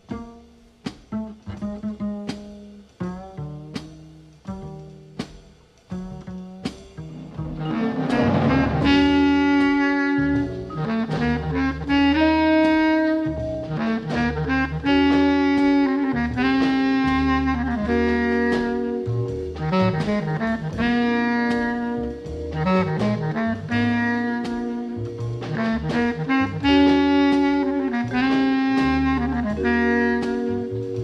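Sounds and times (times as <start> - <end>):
drums with cymbals: 0.0 - 31.0
walking bass: 1.1 - 31.0
horns playing held chords: 7.0 - 31.0.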